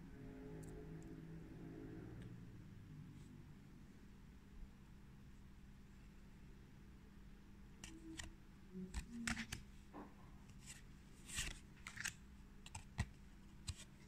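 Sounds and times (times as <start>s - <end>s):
cards clicking and swishing: 7.8s - 8.3s, 8.9s - 9.7s, 10.5s - 14.0s.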